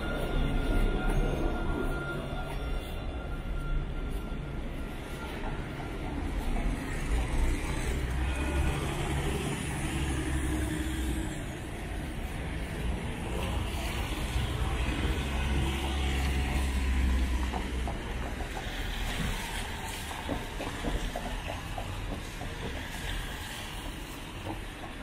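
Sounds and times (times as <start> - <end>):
cars driving past: 5.8 - 25.0.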